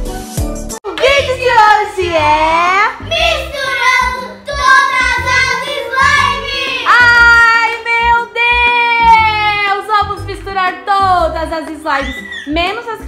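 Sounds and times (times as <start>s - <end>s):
children singing a pop song: 1.0s - 9.7s.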